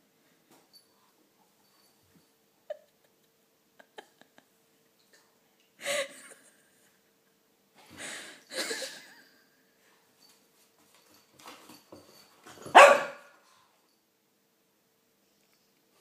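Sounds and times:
puppy barking: 0:12.7 - 0:13.3.

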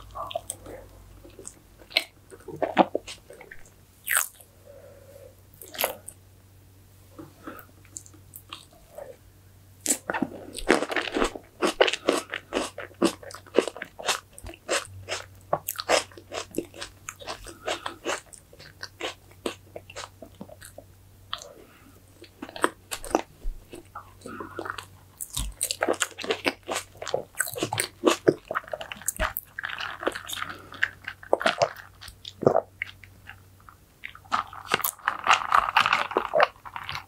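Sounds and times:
close-miked chewing cake: 0:10.6 - 0:21.6, 0:22.2 - 0:37.0.

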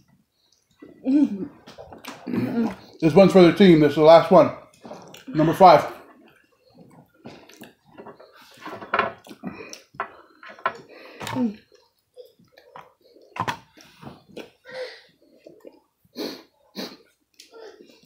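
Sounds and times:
chewing and mouth smacks: 0:00.3 - 0:03.0, 0:04.7 - 0:05.4, 0:06.0 - 0:08.5, 0:09.2 - 0:14.6.

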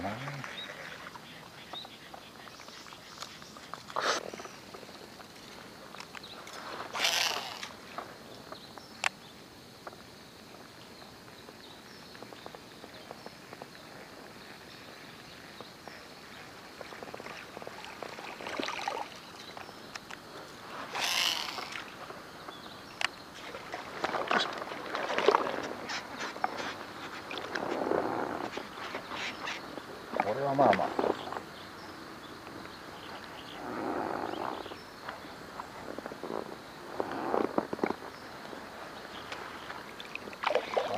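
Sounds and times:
water splashing: 0:16.9 - 0:19.5, 0:23.4 - 0:26.6, 0:39.4 - 0:40.9.

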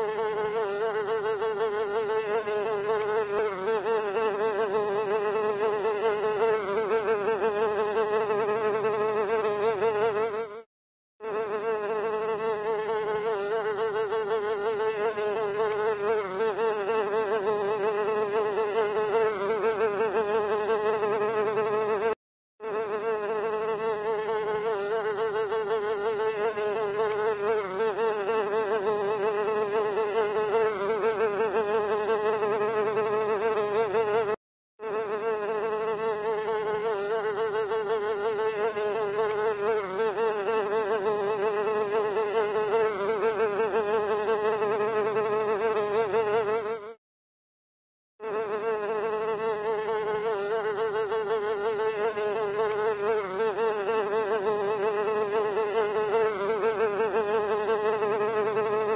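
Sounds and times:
fly buzzing: 0:00.0 - 0:47.0, 0:48.2 - 0:58.9.

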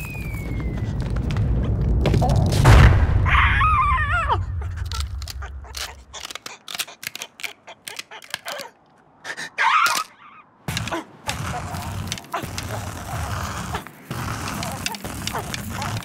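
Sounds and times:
low rumble and loud boom: 0:00.4 - 0:05.2.

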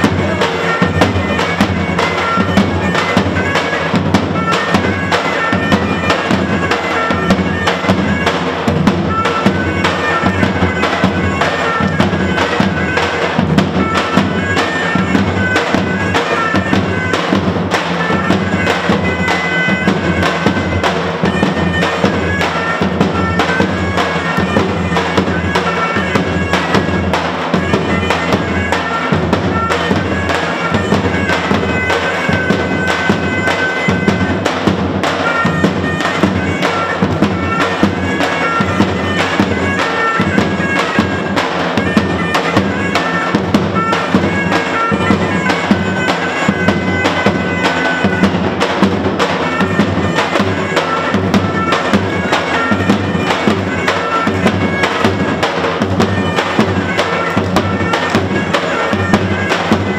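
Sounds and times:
large drum beaten fast: 0:00.0 - 0:59.9
shawms playing reedy melody: 0:00.0 - 0:59.9.

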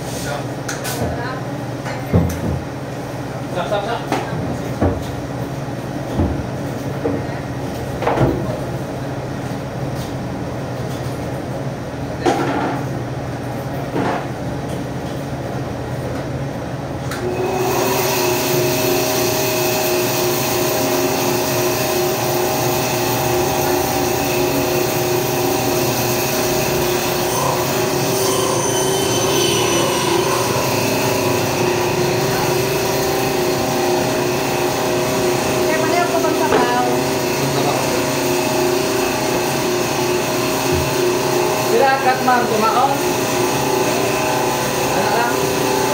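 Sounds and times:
electric machine humming: 0:17.1 - 0:45.9.

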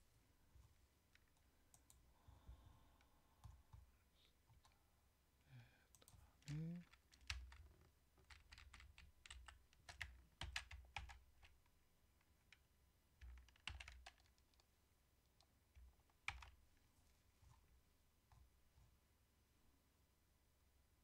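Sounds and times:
keyboard keys clicking: 0:06.8 - 0:11.6, 0:13.2 - 0:14.6, 0:15.4 - 0:16.6.

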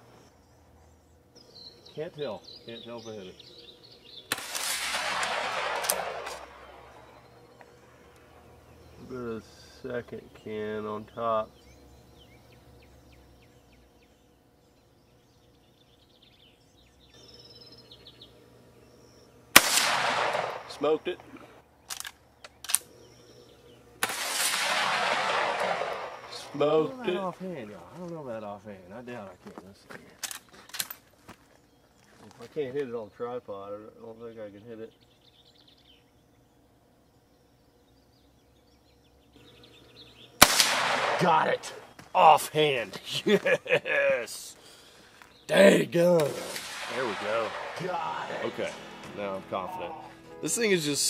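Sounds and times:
high bird trill: 0:00.0 - 0:29.0, 0:33.0 - 0:51.0
small birds chirping: 0:00.0 - 0:51.0
rifle shot with ringing report: 0:04.2 - 0:10.0, 0:19.0 - 0:27.3, 0:40.0 - 0:42.0, 0:46.2 - 0:50.9.

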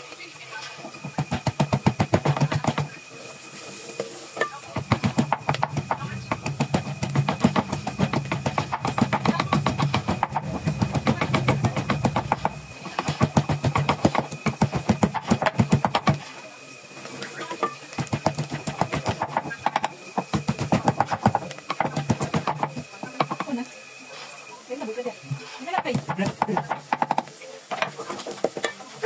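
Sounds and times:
rapid even tapping: 0:01.1 - 0:02.9, 0:04.7 - 0:16.2, 0:18.0 - 0:23.6, 0:25.7 - 0:27.3.

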